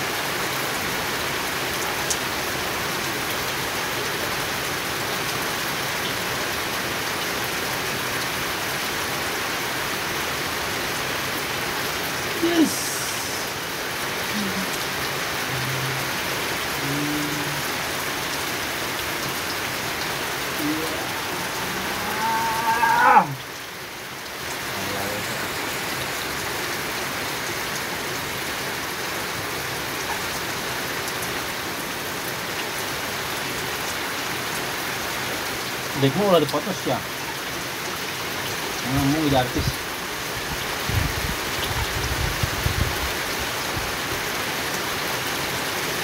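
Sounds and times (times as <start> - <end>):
rain falling on pond: 0.0 - 46.0.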